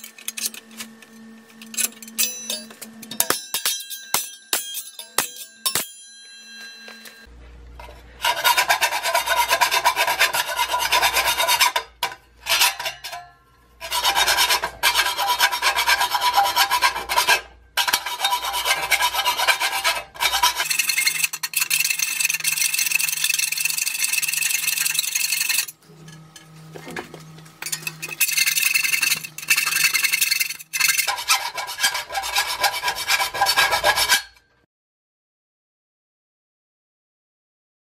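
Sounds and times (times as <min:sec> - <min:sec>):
file rasping on saw blade: 0:07.8 - 0:25.7, 0:27.6 - 0:34.5.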